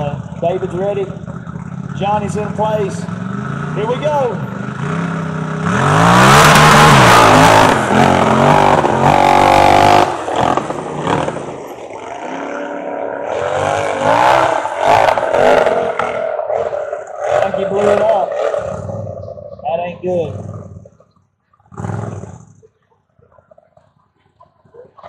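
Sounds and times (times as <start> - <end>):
engine revving hard: 2.2 - 19.2.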